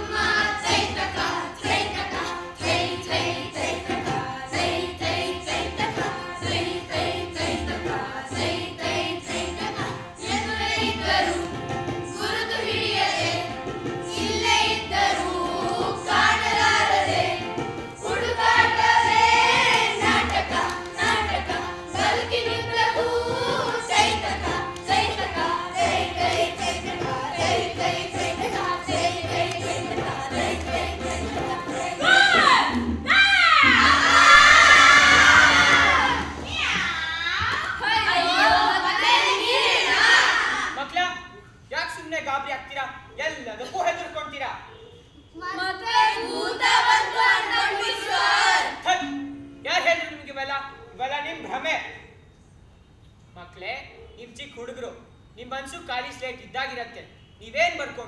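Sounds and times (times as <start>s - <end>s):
chorus of voices singing: 0.0s - 33.0s, 33.6s - 36.8s, 37.8s - 40.8s, 45.6s - 48.8s
steady drum beat: 0.0s - 36.8s.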